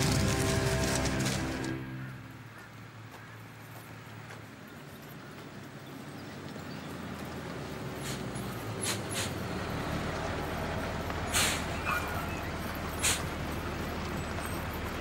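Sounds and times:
truck engine rumbling: 0.0 - 15.0
short hisses: 8.8 - 9.4, 11.3 - 11.7, 13.0 - 13.3.

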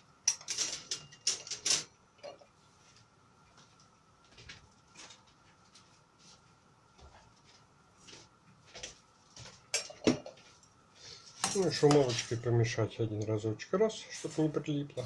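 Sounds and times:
water boiling with ticks and pops: 8.4 - 12.4.

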